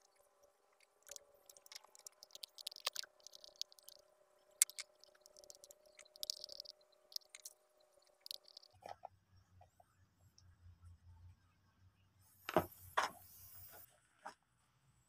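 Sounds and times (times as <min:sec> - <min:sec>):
faint steady hum: 0:00.0 - 0:15.0
sharp plastic clicks: 0:04.6 - 0:08.8.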